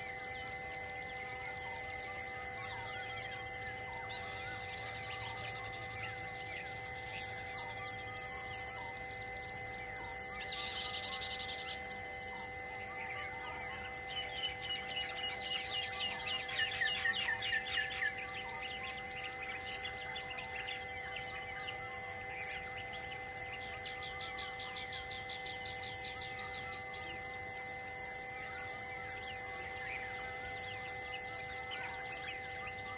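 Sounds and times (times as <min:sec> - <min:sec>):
insect chorus buzzing: 0:00.0 - 0:32.9
wild birds calling: 0:02.6 - 0:09.2, 0:13.4 - 0:27.5.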